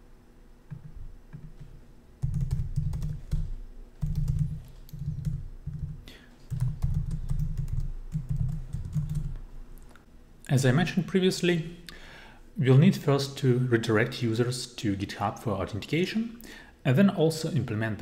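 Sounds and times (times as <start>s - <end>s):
laptop keyboard typing: 0.7s - 9.4s.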